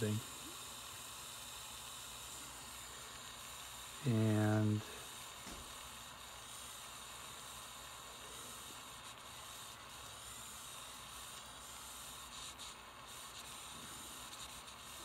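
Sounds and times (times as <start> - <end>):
soldering torch hissing: 0.0 - 15.0.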